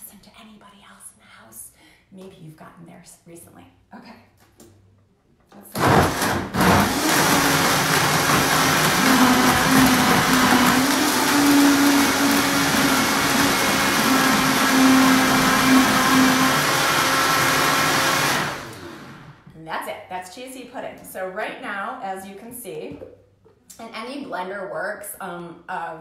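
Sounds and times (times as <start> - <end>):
blender running at high speed: 5.7 - 19.4.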